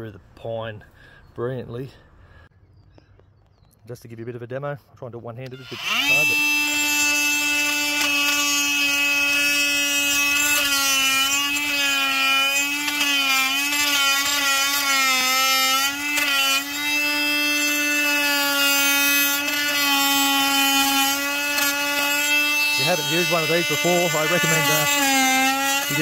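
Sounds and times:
chainsaw whining: 5.5 - 26.0.

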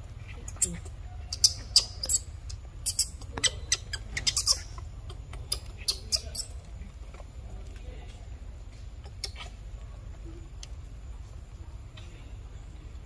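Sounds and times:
baby monkey squeaking: 0.2 - 6.6, 9.0 - 9.6.

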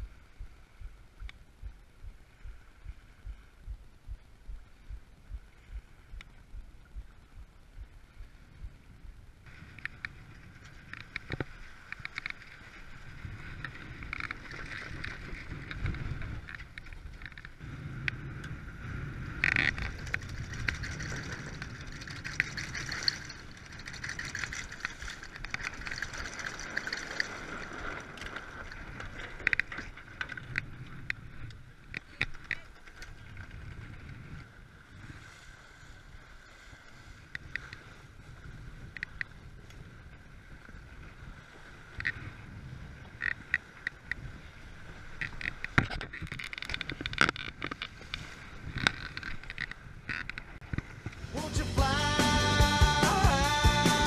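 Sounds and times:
water rushing along hull: 0.0 - 54.0
wind buffeting microphone: 12.9 - 51.4.

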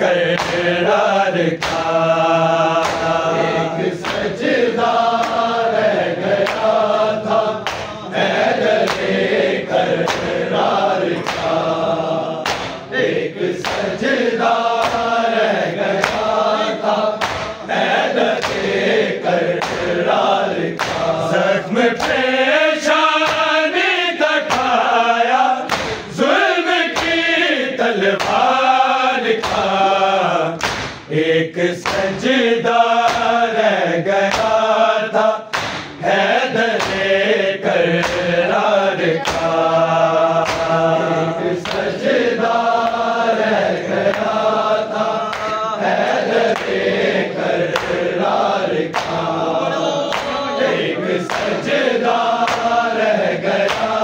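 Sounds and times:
men chanting in chorus: 0.0 - 54.0
steady percussive beat: 1.6 - 4.4, 17.2 - 17.8.

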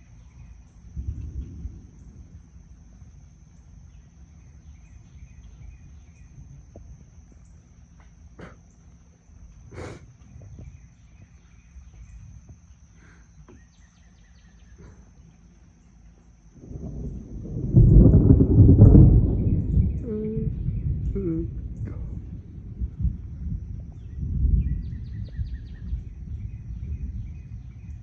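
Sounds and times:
high insect drone: 0.0 - 28.0
low steady background noise: 0.0 - 28.0
bird chirps: 9.9 - 16.0, 24.0 - 28.0.

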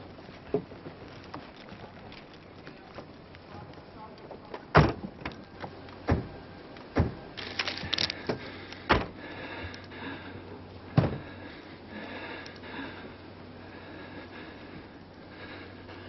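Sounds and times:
sharp thuds: 11.0 - 11.3.

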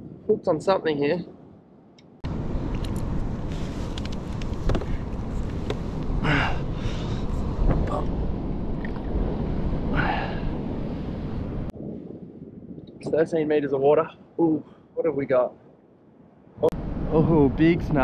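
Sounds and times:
wind buffeting microphone: 2.2 - 14.6, 16.2 - 18.0.

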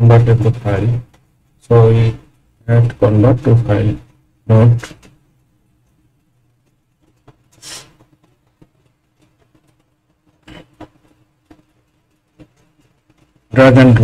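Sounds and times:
soft breath-like hiss: 7.5 - 8.0.

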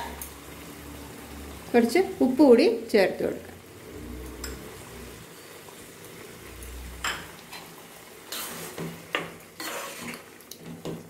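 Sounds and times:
spoon scraping pan: 7.0 - 11.0.

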